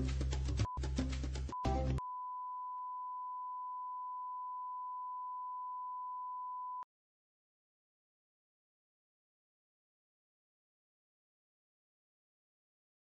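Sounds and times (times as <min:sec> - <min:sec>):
music: 0:00.0 - 0:02.0
high-pitched sine test tone: 0:01.6 - 0:06.8
short beeps: 0:01.6 - 0:06.8.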